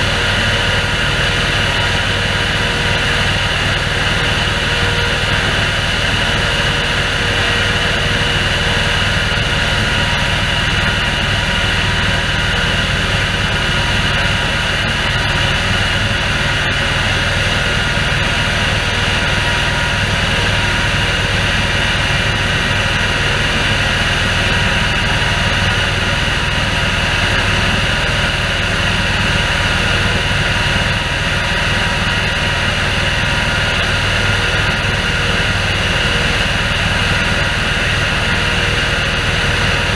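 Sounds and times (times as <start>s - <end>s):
sprayer engine hum: 0.0s - 39.9s
sprayer fan whine: 0.0s - 39.9s.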